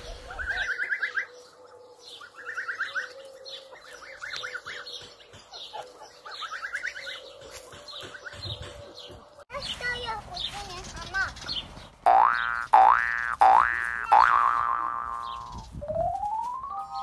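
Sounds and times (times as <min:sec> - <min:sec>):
young geese peeping: 0:00.0 - 0:09.3, 0:12.1 - 0:17.0.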